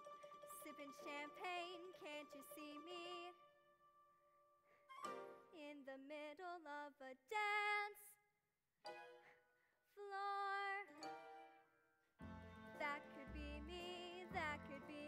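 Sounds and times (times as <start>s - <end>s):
soft instrumental accompaniment: 0.0s - 5.6s, 10.9s - 15.0s
girl singing: 0.5s - 3.5s, 5.5s - 8.2s, 10.0s - 11.0s, 12.8s - 15.0s.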